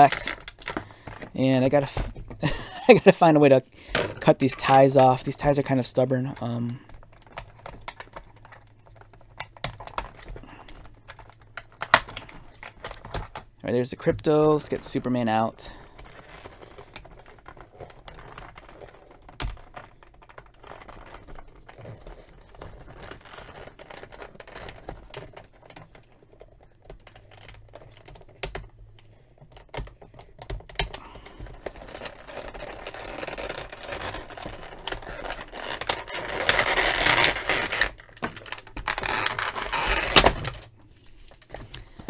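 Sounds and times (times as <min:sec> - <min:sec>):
plastic rustling and crinkling: 0:00.0 - 0:42.0.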